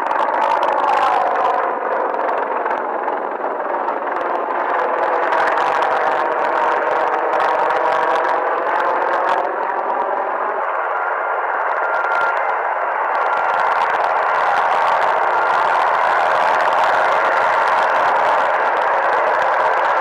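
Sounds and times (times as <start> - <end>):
helicopters flying overhead: 0.0 - 20.0.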